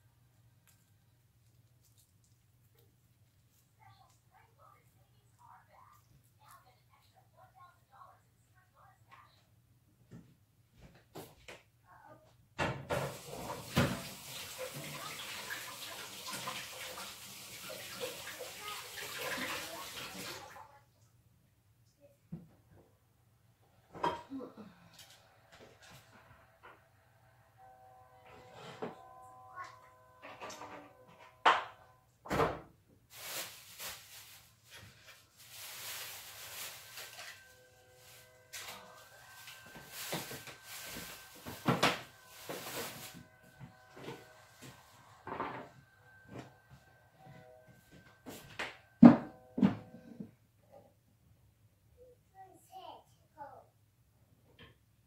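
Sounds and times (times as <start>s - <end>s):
tap water running and splashing: 12.9s - 20.7s.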